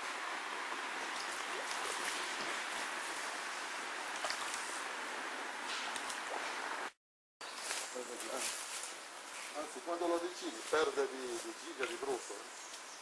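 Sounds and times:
stream rippling water: 0:00.0 - 0:07.0.

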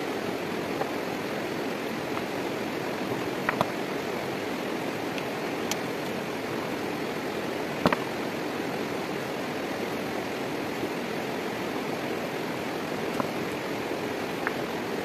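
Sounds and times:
running water of a stream: 0:00.0 - 0:15.0
stones knocking on stone wall: 0:07.8 - 0:08.0.

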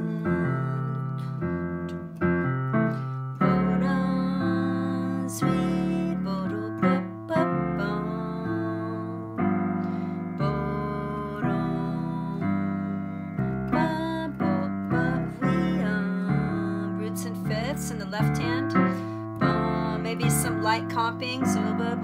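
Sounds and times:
digital piano jazz chords: 0:00.0 - 0:22.0.

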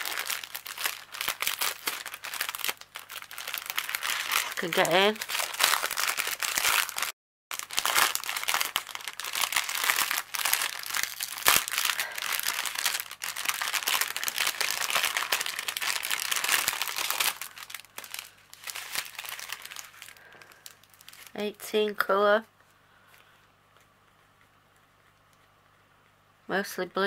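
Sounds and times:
plastic bags crinkling: 0:00.0 - 0:21.4.

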